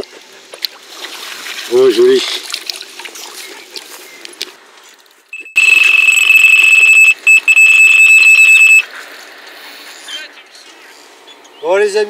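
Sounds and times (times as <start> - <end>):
electronic bite alarm tone: 5.4 - 8.8.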